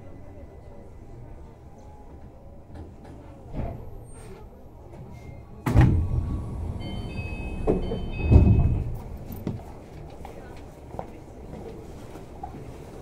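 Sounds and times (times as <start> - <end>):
high door chime: 6.7 - 9.4
heavy door thud: 7.5 - 9.2.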